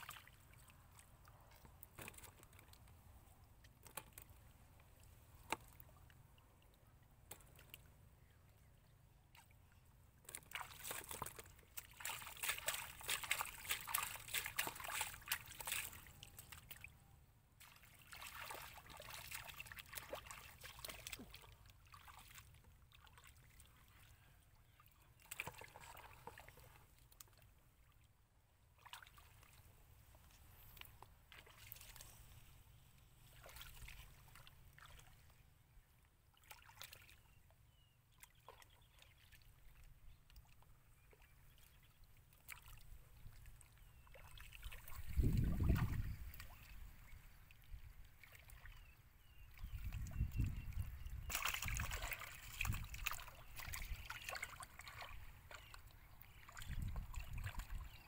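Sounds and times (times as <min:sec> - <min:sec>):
hands splashing in water: 0:10.4 - 0:16.8, 0:51.2 - 0:55.8.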